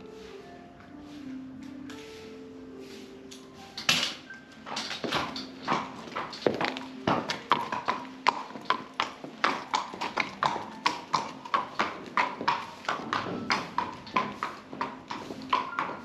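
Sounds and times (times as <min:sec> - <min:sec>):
hooves clip-clopping on concrete: 0:03.3 - 0:16.0.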